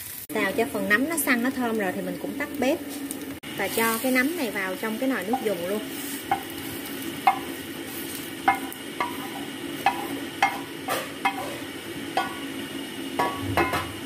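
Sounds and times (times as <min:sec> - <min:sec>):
wooden spatula knocking on pot: 0:06.3 - 0:06.5, 0:07.2 - 0:07.5, 0:09.8 - 0:11.5, 0:12.2 - 0:12.5, 0:13.2 - 0:14.0.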